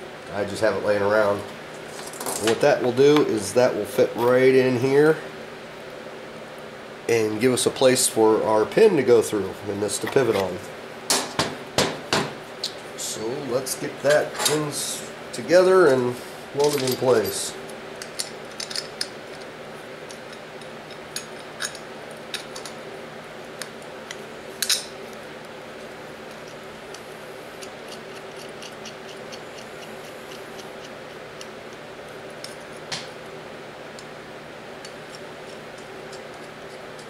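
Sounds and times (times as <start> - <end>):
steady hum: 0.0 - 37.0
small steel parts clicking: 18.0 - 19.5.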